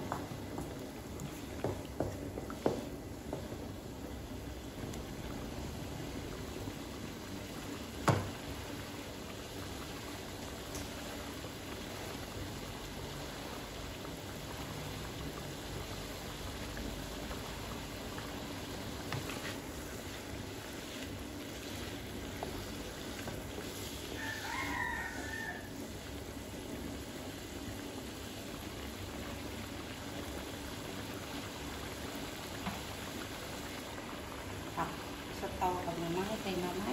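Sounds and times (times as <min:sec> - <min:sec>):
curry bubbling in a wok: 0:00.0 - 0:36.9
rooster crowing: 0:24.1 - 0:25.8.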